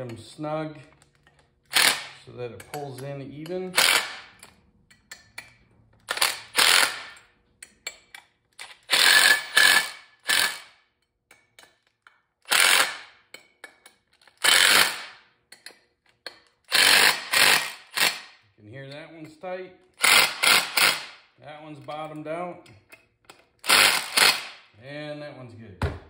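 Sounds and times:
impact driver hammering bolts: 1.7 - 4.6, 6.0 - 7.3, 8.6 - 10.8, 12.4 - 13.4, 14.2 - 15.2, 16.3 - 18.4, 20.0 - 21.2, 23.3 - 24.6.

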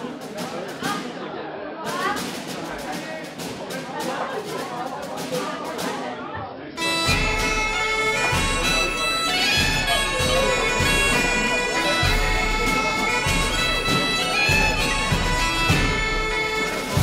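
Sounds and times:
bagpipes playing a tune: 6.8 - 17.0.

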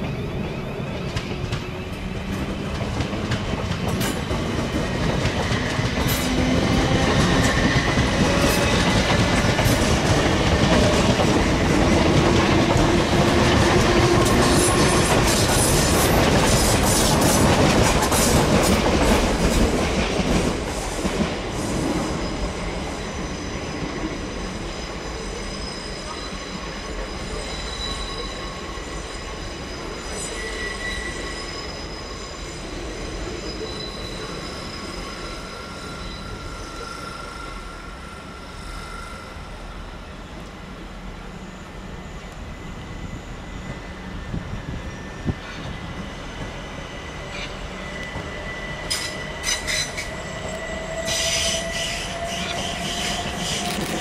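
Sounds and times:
train wheels rumbling on rails: 0.0 - 37.1, 41.9 - 54.0
high wheel squeal: 22.0 - 40.0, 41.3 - 54.0.

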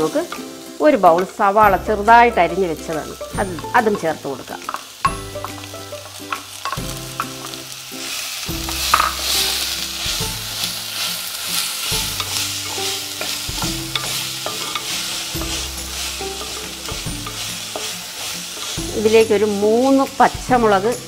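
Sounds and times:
onions sizzling in hot oil: 0.0 - 21.0
wooden spoon scraping: 7.4 - 19.9.

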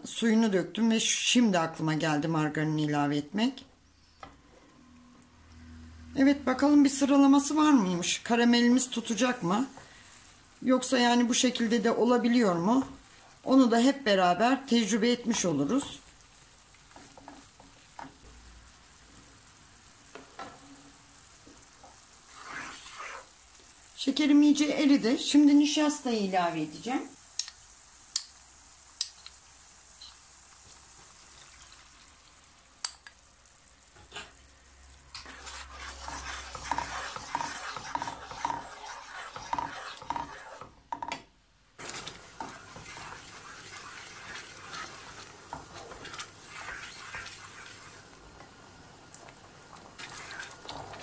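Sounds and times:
caramel sizzling and bubbling: 0.0 - 51.0
wooden spatula scraping pan: 21.8 - 23.3, 35.2 - 41.1, 41.8 - 48.1, 50.0 - 51.0.

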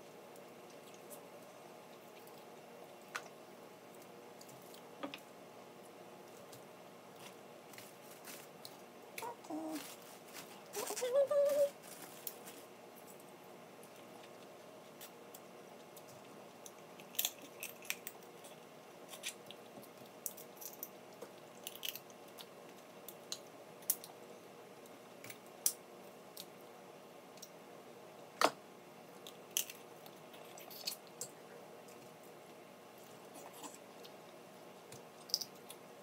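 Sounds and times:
faint steady hum: 0.0 - 36.0
crab shells cracking: 14.9 - 24.2, 29.2 - 31.3.

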